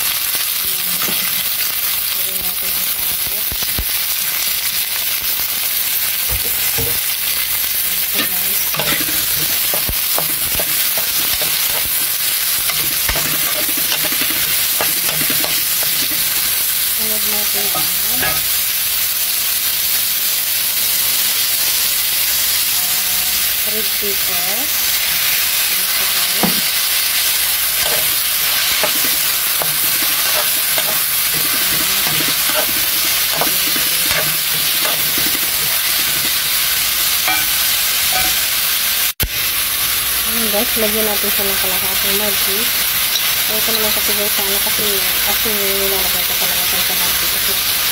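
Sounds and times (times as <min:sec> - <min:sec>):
vegetables sizzling in hot oil: 0:00.0 - 0:47.9
utensil scraping a pan: 0:08.1 - 0:16.7, 0:17.4 - 0:18.6, 0:27.8 - 0:38.5.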